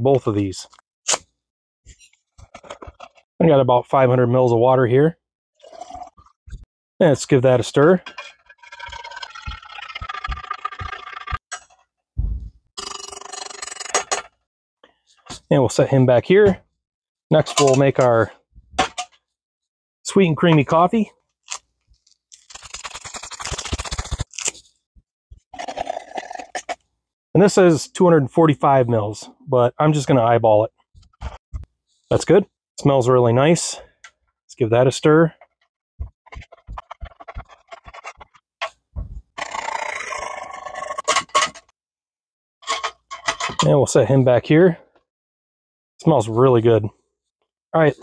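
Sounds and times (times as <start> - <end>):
packet rustling: 21.5 - 24.6
coffee packet tearing open: 21.5 - 24.7.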